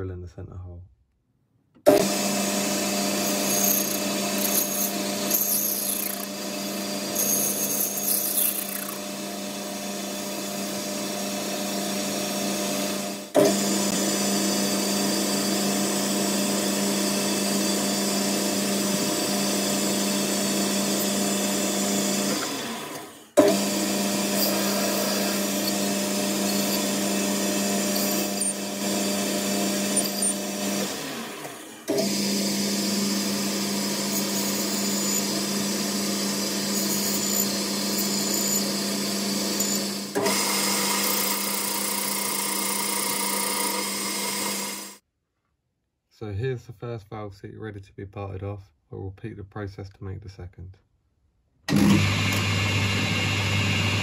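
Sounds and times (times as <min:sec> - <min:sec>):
lathe motor humming: 0:01.9 - 0:45.0.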